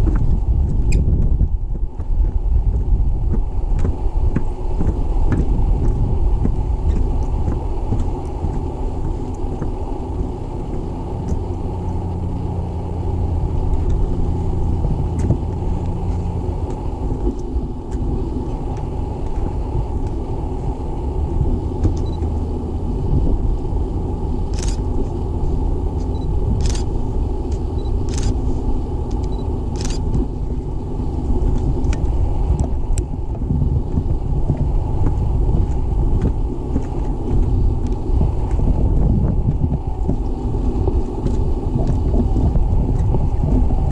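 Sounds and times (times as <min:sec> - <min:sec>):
faint low hum: 0:00.0 - 0:43.9
wind buffeting microphone: 0:00.0 - 0:43.9
sharp ticks: 0:29.1 - 0:30.3.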